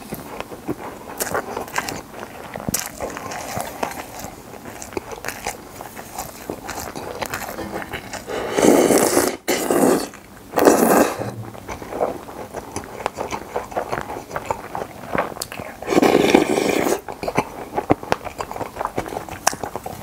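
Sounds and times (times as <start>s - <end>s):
wet chewing and lip-smacking: 0.0s - 20.0s
person slurping noodles: 7.9s - 13.0s, 15.8s - 17.0s.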